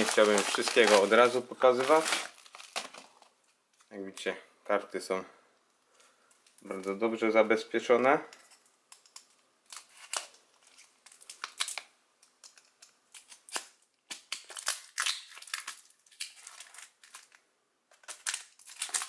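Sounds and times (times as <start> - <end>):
packaging crinkling: 0.0 - 3.9, 9.0 - 19.0.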